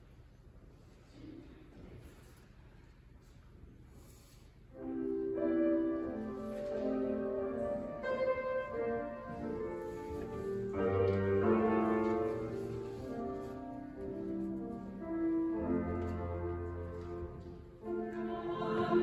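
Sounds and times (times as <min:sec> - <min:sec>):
piano hymn chords: 0:04.8 - 0:19.0.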